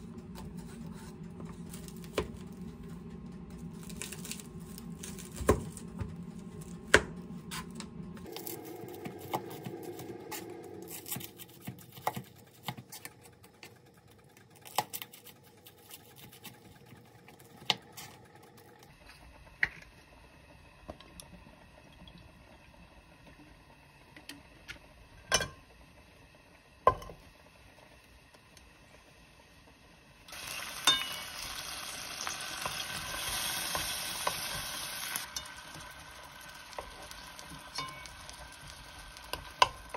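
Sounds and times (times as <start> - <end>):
shrimp sizzling in frying pan: 30.3 - 39.9.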